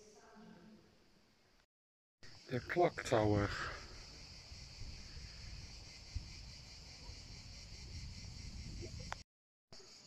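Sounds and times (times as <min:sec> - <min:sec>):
insects chirring: 0:02.2 - 0:09.2, 0:09.8 - 0:10.0.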